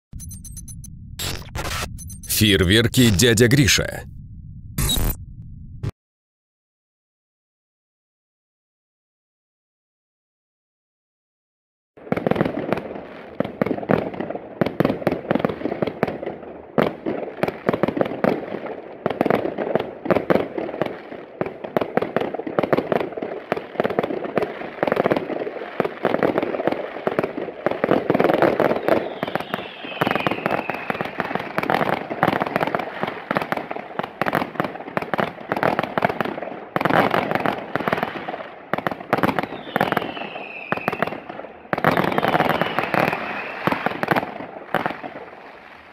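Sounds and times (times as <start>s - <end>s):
firework launches and bursts: 22.6s - 45.9s
falling firework whistles: 28.4s - 33.7s, 39.2s - 45.9s.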